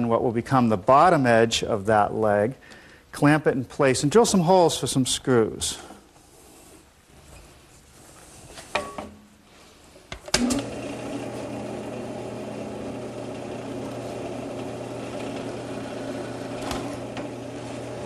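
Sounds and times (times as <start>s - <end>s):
drill press motor humming: 10.3s - 18.0s
drill bit drilling aluminum: 10.6s - 18.0s.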